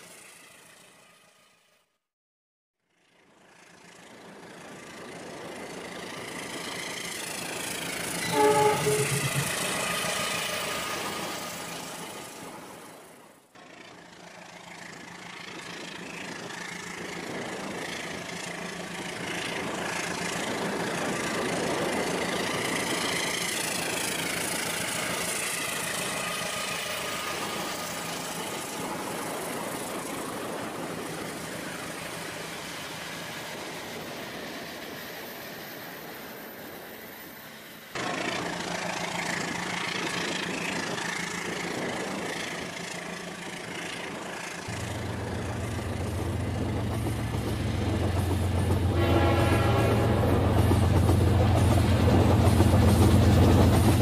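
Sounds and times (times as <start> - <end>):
toy train running on track: 0.0 - 1.7, 2.9 - 54.0
horn-like tone: 8.2 - 10.0, 48.9 - 50.6
low engine hum: 44.7 - 48.9.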